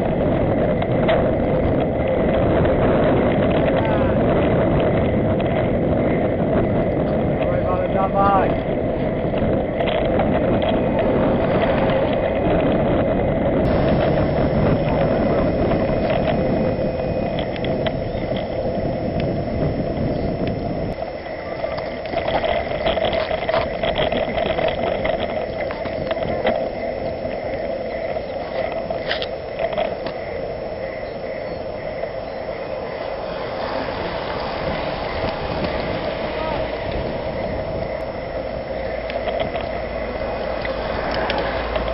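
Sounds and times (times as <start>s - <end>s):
bicycle clicks and rattles: 0.0s - 21.0s, 21.7s - 32.1s, 36.9s - 41.9s
tyres humming on asphalt: 0.0s - 41.9s
wind on camera microphone: 0.0s - 41.9s.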